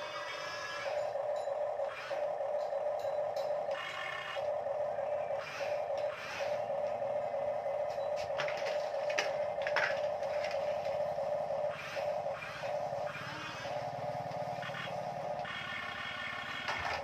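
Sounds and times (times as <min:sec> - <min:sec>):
steady mid-pitched drone: 0:00.0 - 0:17.0
toy cars clicking on wooden floor: 0:08.4 - 0:11.0, 0:16.6 - 0:17.0.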